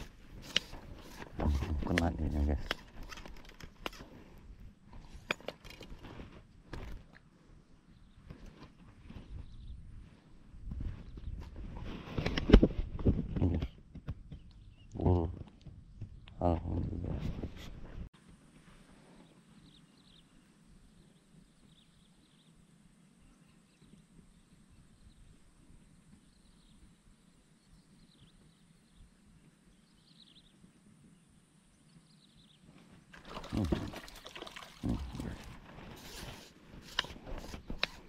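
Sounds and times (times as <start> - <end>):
water splashing: 33.1 - 35.6.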